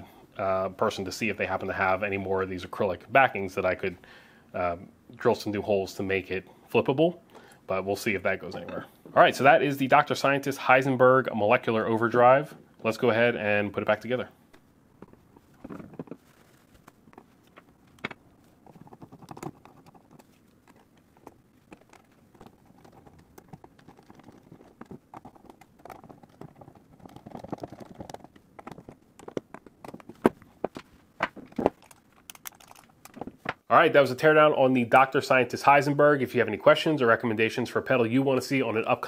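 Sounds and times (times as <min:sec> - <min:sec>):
small clicks taps and scrapes: 0:14.5 - 0:33.6.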